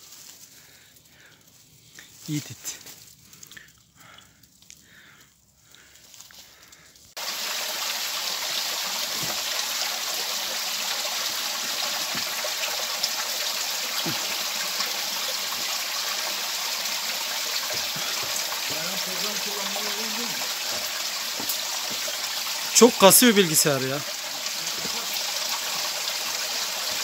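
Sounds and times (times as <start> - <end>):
stream rushing: 7.2 - 27.0.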